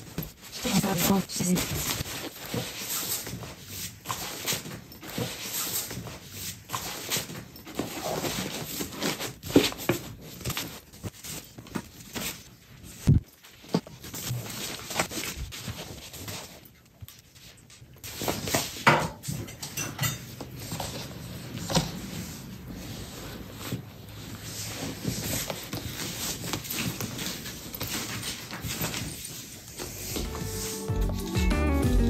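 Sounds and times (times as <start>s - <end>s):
clothes and pouches rustling: 0.0s - 19.6s, 20.2s - 32.0s.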